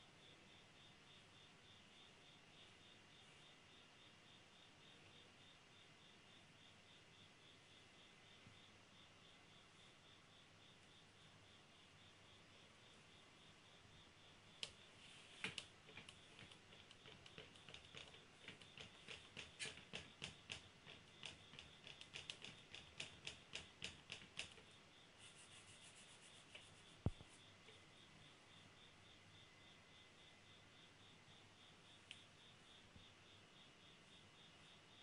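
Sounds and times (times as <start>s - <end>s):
pencil scratching on paper: 25.2s - 27.4s.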